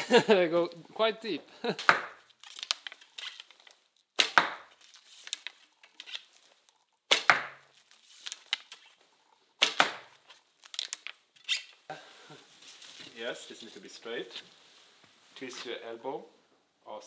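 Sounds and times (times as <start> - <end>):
bowstring snapping: 4.2 - 4.6
arrow thudding into target: 4.2 - 4.7, 7.1 - 7.6, 9.6 - 10.2.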